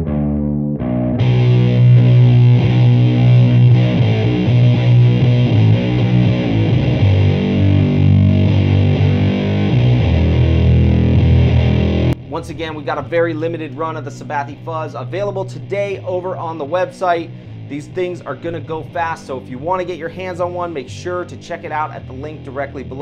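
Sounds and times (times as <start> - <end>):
distorted fuzz guitar riff: 0.0 - 23.0
electric guitar picked notes: 0.0 - 23.0.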